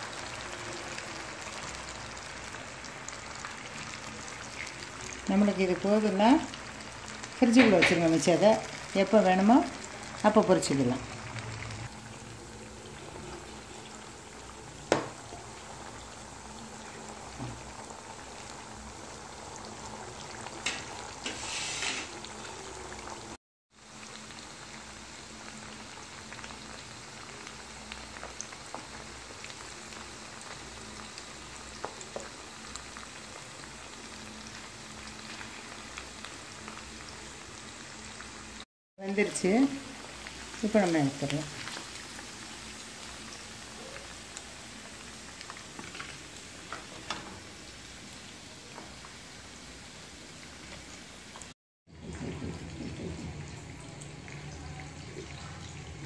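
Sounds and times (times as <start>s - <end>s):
chicken deep-frying in oil: 0.0s - 56.0s
louder oil crackle: 39.8s - 49.2s.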